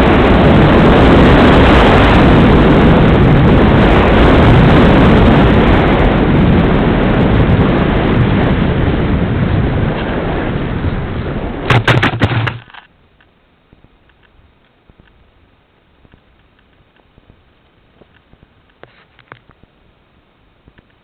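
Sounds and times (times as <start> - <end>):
air rush and motor noise: 0.0 - 21.0
plane knocking on ground: 11.6 - 12.8.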